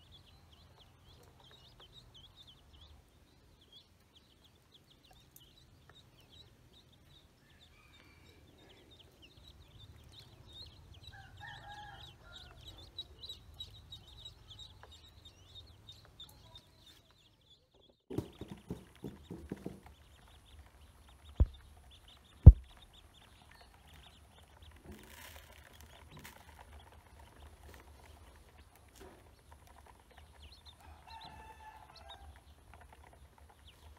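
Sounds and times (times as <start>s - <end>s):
ducklings and chicks peeping: 0.0s - 33.9s
loud sharp knocks: 18.1s - 19.9s, 22.4s - 22.7s.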